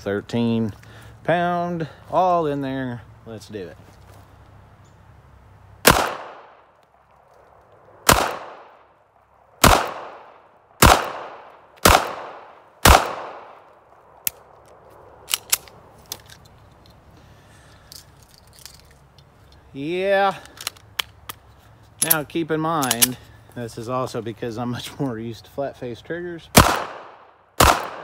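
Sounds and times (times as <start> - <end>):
pistol shots: 5.8 - 6.6, 8.0 - 8.8, 9.6 - 13.6, 26.6 - 28.0.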